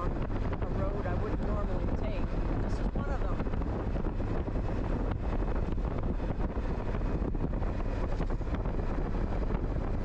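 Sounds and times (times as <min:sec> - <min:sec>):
motorcycle engine drone: 0:00.0 - 0:10.0
wind rushing over camera: 0:00.0 - 0:10.0.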